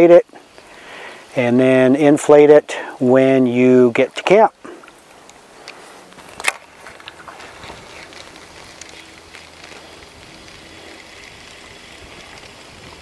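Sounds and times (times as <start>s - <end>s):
light ticks of water: 0.4s - 1.3s, 4.1s - 13.0s
water lapping and trickling: 4.6s - 13.0s.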